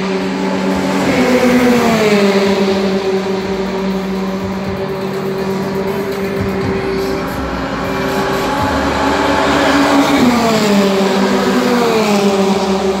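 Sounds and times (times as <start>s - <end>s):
race car engine passing: 0.0s - 13.0s.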